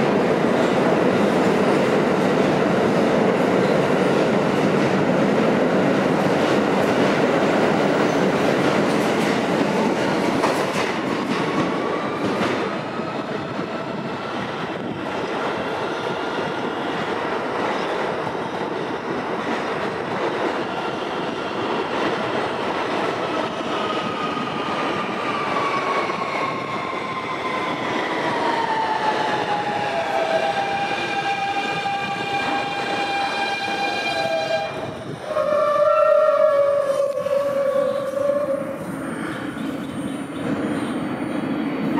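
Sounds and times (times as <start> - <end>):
subway train wheels rumbling: 0.0 - 41.9.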